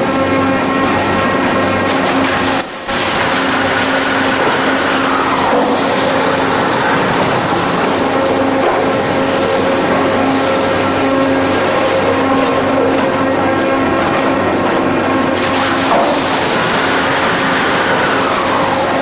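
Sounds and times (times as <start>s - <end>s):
constant machine hum: 0.0s - 19.0s
wood-mill machinery din: 0.0s - 19.0s.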